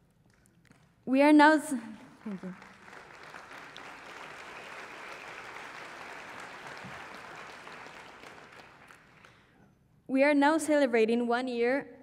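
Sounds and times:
audience applauding: 0:02.2 - 0:09.5.

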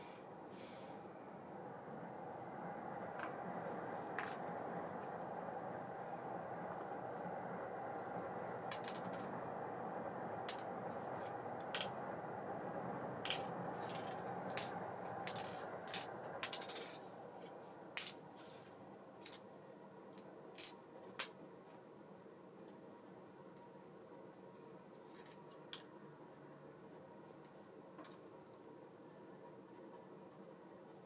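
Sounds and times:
steady whir: 0:00.0 - 0:18.2.

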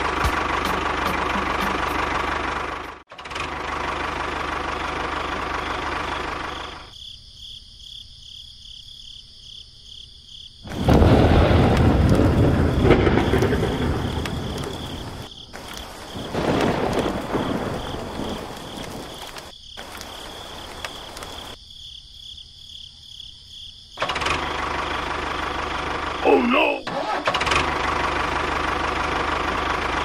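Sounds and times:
insects chirring: 0:05.4 - 0:26.9
rain: 0:10.6 - 0:21.6, 0:24.0 - 0:30.0
thunder rolling: 0:10.7 - 0:21.6.

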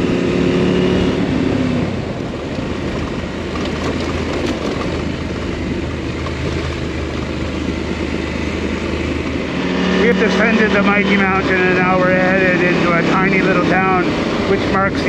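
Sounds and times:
motorcycle engine drone: 0:00.0 - 0:15.0
wind rush: 0:05.0 - 0:15.0.

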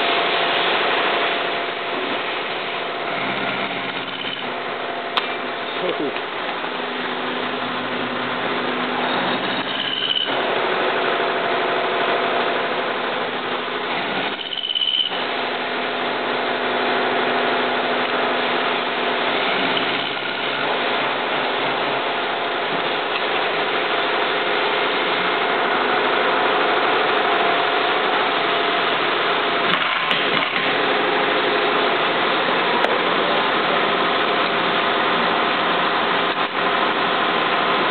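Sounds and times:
constant hum: 0:00.0 - 0:37.9
milling machine cutting metal: 0:00.0 - 0:37.9
short high squeal: 0:09.0 - 0:10.4.

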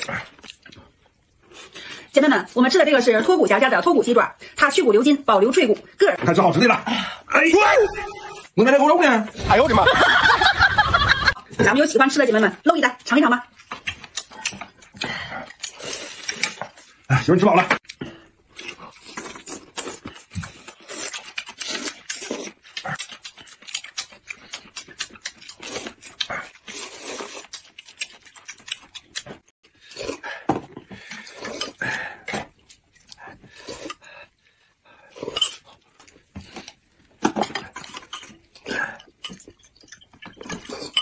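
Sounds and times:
wet chewing and lip-smacking: 0:00.0 - 0:01.8, 0:13.4 - 0:17.1, 0:17.8 - 0:30.2, 0:31.0 - 0:34.4, 0:35.1 - 0:41.0.

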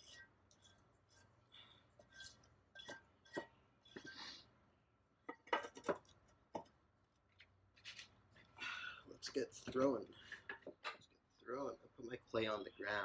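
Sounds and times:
faint clinks and knocks: 0:00.0 - 0:04.3.

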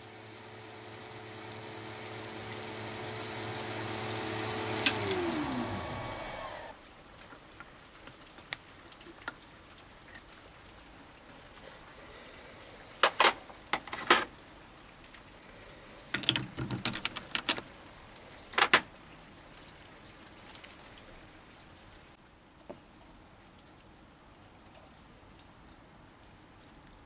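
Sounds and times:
metallic clicks and knocks on chuck: 0:16.2 - 0:17.6.

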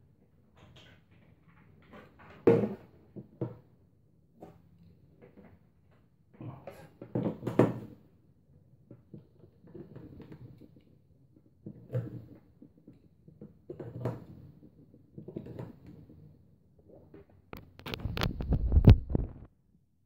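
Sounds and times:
plastic knocks clicks and scrapes: 0:17.6 - 0:19.5.

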